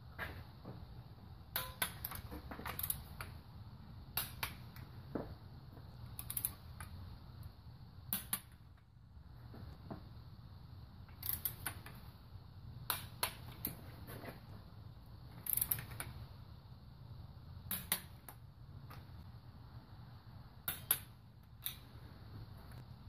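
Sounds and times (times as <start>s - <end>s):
torque wrench clicking: 1.5s - 3.3s, 6.2s - 6.9s, 11.1s - 12.0s, 15.4s - 16.1s, 17.7s - 18.4s, 20.6s - 21.8s.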